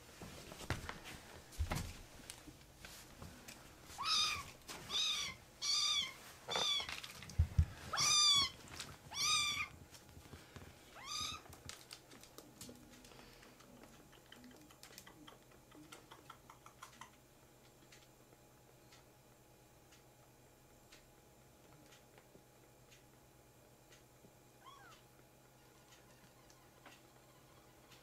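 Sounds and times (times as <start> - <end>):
kitten meowing: 4.0 - 6.9, 7.9 - 9.7, 11.0 - 11.4, 24.6 - 25.0.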